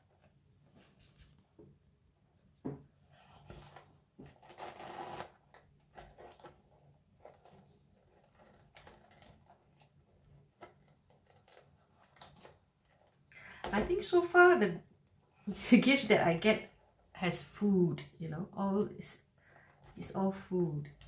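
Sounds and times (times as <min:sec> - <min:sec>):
wrapping paper rustling: 0:03.4 - 0:14.2.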